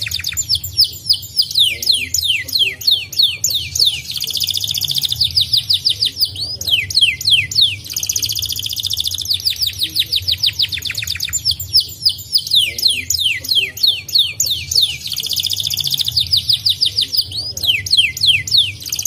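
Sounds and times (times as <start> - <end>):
canary singing: 0.0 - 19.0
rapid rolling bird trills: 0.0 - 19.0.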